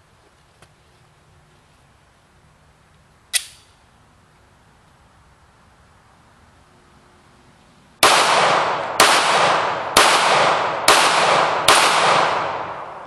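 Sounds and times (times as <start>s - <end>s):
pistol shots with echo: 8.0s - 13.0s.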